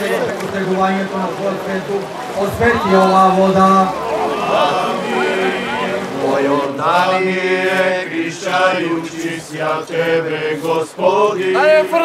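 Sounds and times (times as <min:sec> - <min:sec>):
liturgical chanting: 0:00.0 - 0:12.0
low held drone tone: 0:02.1 - 0:07.4.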